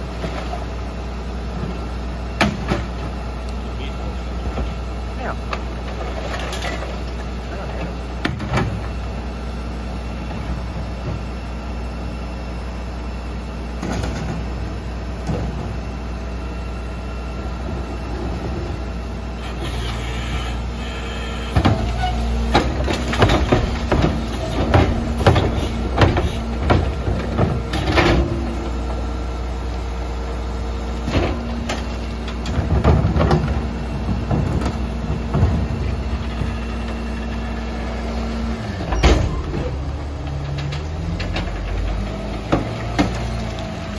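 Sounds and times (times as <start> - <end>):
garbage truck idling: 0.0 - 43.9
hydraulic hum: 13.3 - 43.9
plastic bins banging and clattering: 32.5 - 35.8.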